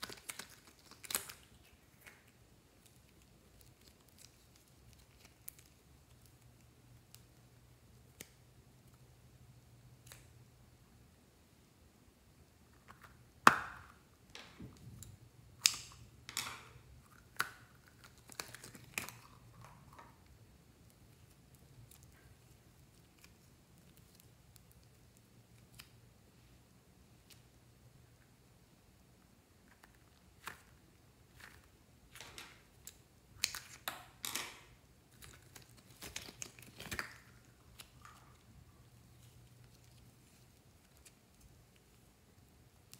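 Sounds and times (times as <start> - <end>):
crinkly tearing: 0.0 - 6.4, 17.7 - 19.6, 35.1 - 38.4, 39.1 - 42.0.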